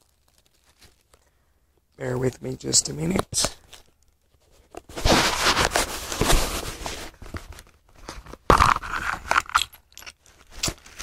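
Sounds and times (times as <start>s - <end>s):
tissue paper rustling: 0.0s - 1.2s, 4.3s - 7.7s.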